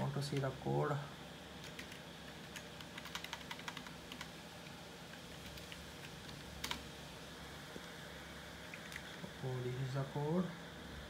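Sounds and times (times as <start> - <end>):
computer keyboard typing: 1.6 - 6.9, 8.6 - 9.2.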